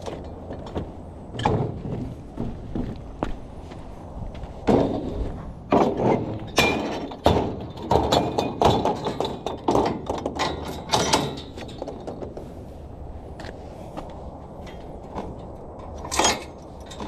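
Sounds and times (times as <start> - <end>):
metal gate clanks and thunks: 0.0 - 2.2, 4.6 - 12.4, 14.6 - 17.0
metal mesh rattling: 5.7 - 12.4.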